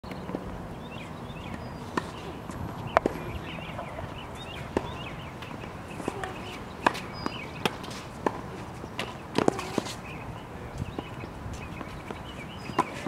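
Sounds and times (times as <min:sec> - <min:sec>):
tennis balls struck by rackets: 0:01.4 - 0:10.2, 0:10.8 - 0:13.0
balls bouncing on hard court: 0:04.4 - 0:10.0.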